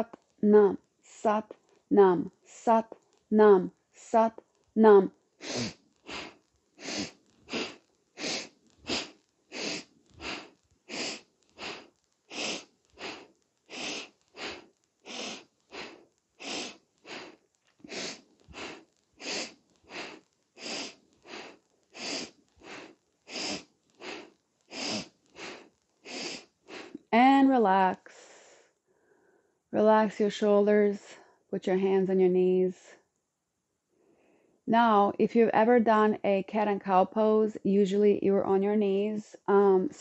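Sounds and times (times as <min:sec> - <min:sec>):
woman breathing through nose: 0:05.4 - 0:27.1, 0:28.1 - 0:29.6, 0:33.9 - 0:34.6.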